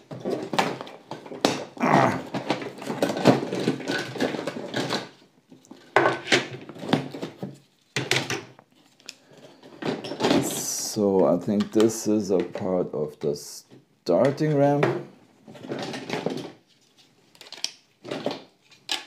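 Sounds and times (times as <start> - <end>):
plastic track pieces clattering: 0.0 - 10.7, 15.5 - 16.6, 17.3 - 19.0.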